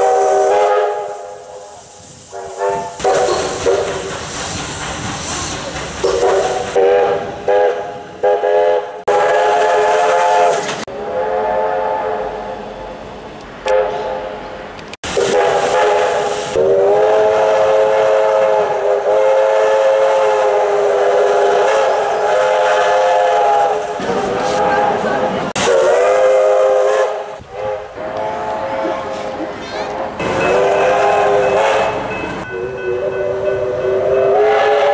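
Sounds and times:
steam locomotive chime whistle: 0.0s - 4.1s, 30.2s - 34.9s.

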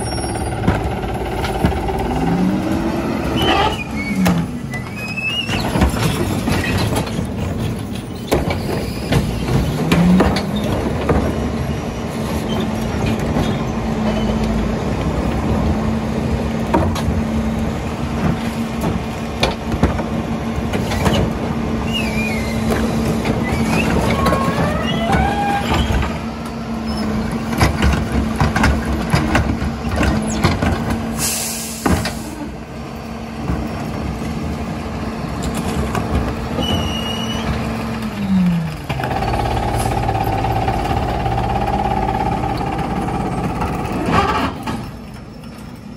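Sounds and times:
squeals: 0.0s - 0.6s, 3.3s - 6.9s, 7.9s - 9.8s, 21.8s - 22.7s, 23.4s - 26.1s, 26.8s - 27.3s, 36.6s - 37.6s
carts and recyclables clattering: 0.0s - 45.9s
diesel engine running: 0.0s - 45.9s
packer hydraulics: 20.6s - 32.6s, 35.6s - 45.8s.

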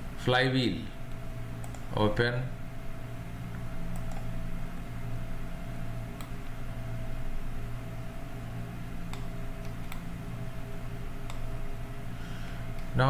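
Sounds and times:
low hum and hiss: 0.0s - 13.0s
computer mouse clicks: 1.1s - 1.9s, 3.5s - 4.3s, 6.2s - 6.5s, 9.0s - 10.1s, 11.2s - 11.5s, 12.7s - 13.0s.

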